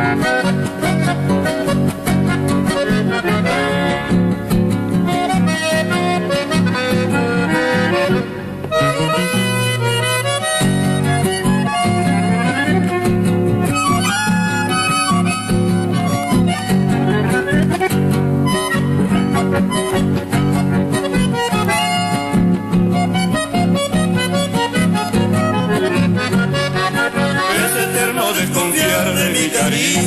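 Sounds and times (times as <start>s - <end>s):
accordion melody: 0.0s - 30.0s
acoustic guitars: 0.0s - 30.0s.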